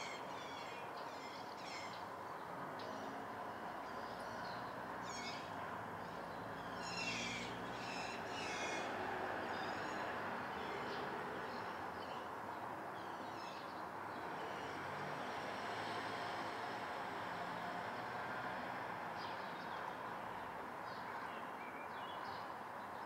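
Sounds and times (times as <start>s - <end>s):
birds chirping: 0.0s - 12.3s.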